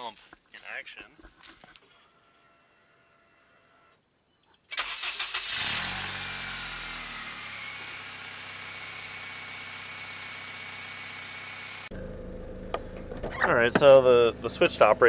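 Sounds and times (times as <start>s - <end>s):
starter motor cranking: 4.7s - 6.4s
car engine revving and idling: 5.4s - 15.0s.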